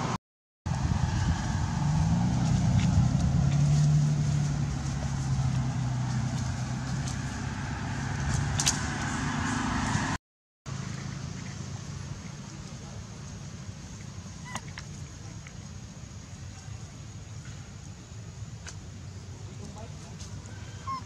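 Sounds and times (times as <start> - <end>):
vehicle engine hum: 0.0 - 21.0.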